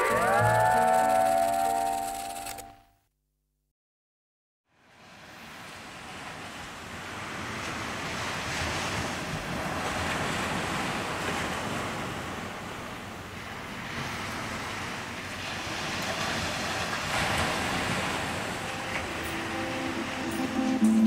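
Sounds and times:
ocean surf washing in: 5.0 - 21.0.

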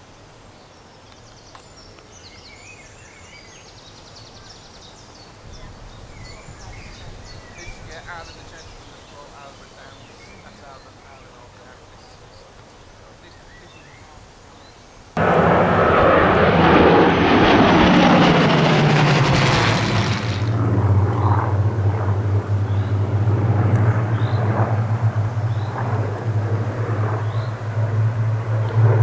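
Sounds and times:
propeller planes flying past: 15.2 - 29.0.

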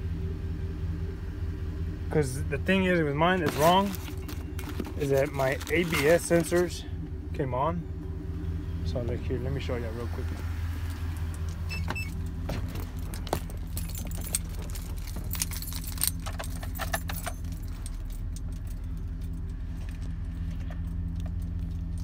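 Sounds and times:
pickup engine idling: 0.0 - 22.0
keys jangling: 12.8 - 19.5.

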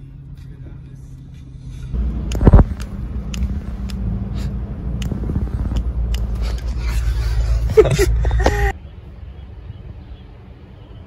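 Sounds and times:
car engine hum: 0.0 - 11.0
sharp clicks: 2.1 - 4.2, 4.8 - 6.8.

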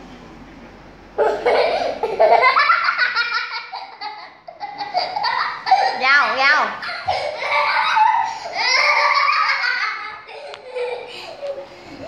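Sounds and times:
children giggling: 1.2 - 6.1, 6.8 - 12.0.

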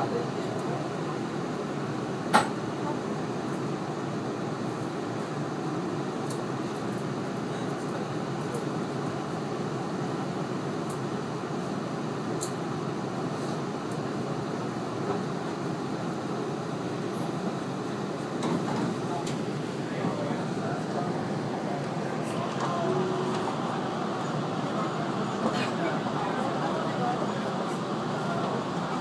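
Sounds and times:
electric train running noise: 20.9 - 29.0.

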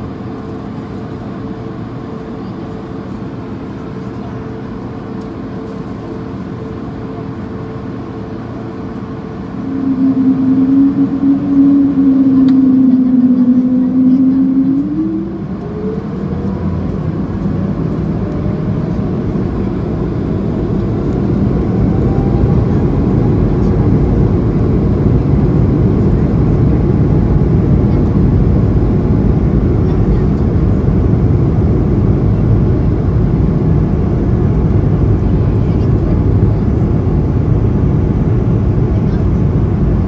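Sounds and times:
faint engine whine: 0.0 - 40.0
jet engine hum: 0.0 - 40.0
deep rumble and rush: 9.1 - 40.0.

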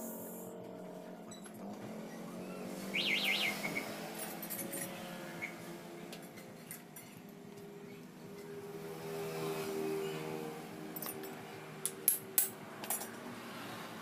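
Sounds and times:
bird chirping: 2.3 - 4.0
metal tools clinking: 4.1 - 5.2, 6.1 - 7.4, 11.0 - 11.4, 12.0 - 13.2.

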